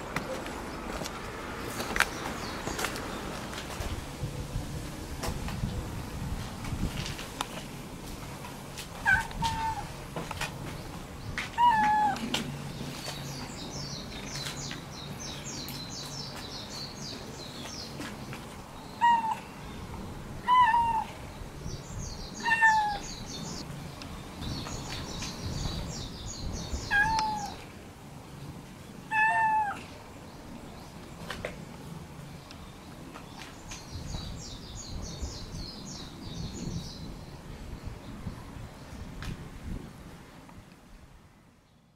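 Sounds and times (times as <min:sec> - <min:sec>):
cat meowing: 0:09.0 - 0:09.9, 0:11.6 - 0:12.2, 0:20.4 - 0:21.1, 0:22.4 - 0:23.0, 0:26.9 - 0:27.6, 0:29.1 - 0:29.8.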